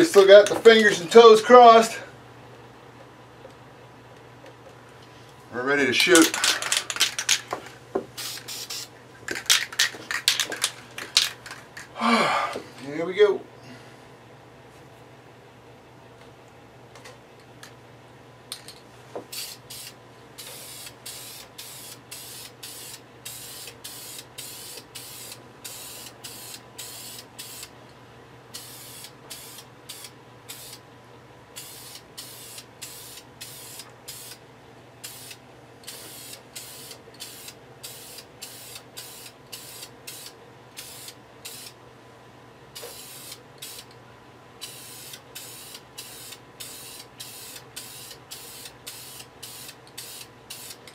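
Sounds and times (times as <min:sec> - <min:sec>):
spray can hissing bursts: 0:08.2 - 0:11.4, 0:19.3 - 0:27.7, 0:28.5 - 0:30.8, 0:31.6 - 0:34.4, 0:35.0 - 0:41.8, 0:42.8 - 0:43.9, 0:44.6 - 0:50.8.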